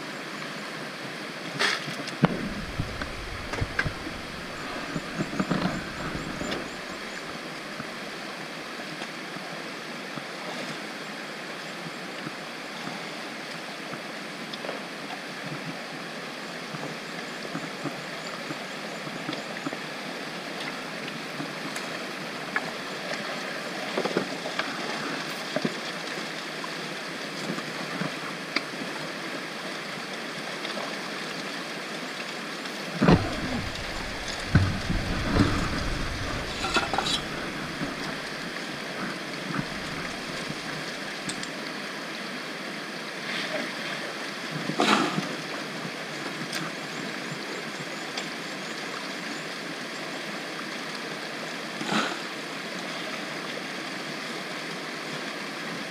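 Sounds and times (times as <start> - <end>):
creek running over stones: 0.2 - 55.9
gravel sloshing in plastic buckets: 2.3 - 7.4, 33.0 - 41.2.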